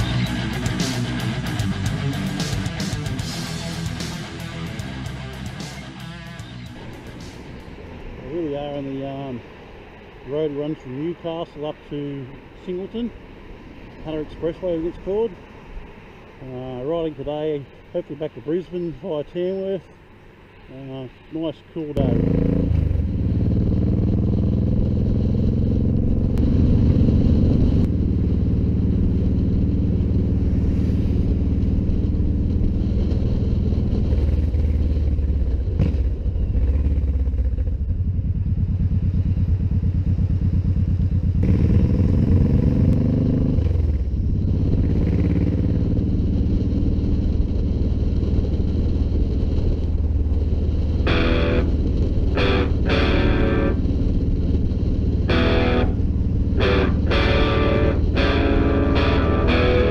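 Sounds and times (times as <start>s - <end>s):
motorcycle engine running: 22.0s - 59.9s.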